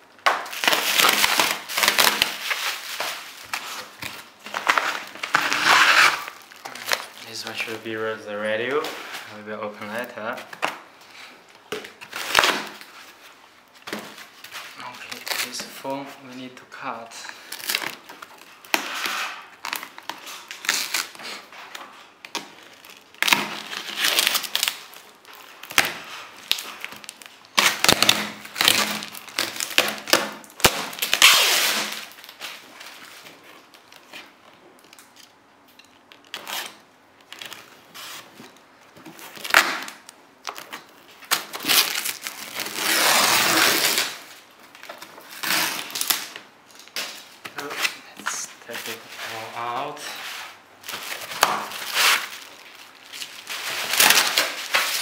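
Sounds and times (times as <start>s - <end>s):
packing material rustling: 0.4s - 16.2s, 16.9s - 55.0s
stretch wrap being cut: 4.7s - 6.4s, 41.4s - 44.2s, 51.3s - 52.4s.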